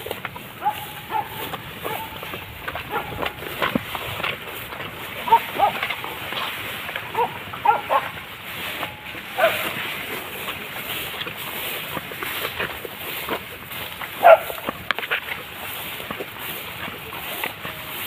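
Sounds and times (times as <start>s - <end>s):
steady background noise: 0.0s - 18.0s
dogs yelping: 0.5s - 3.8s, 5.0s - 9.8s, 14.1s - 14.7s.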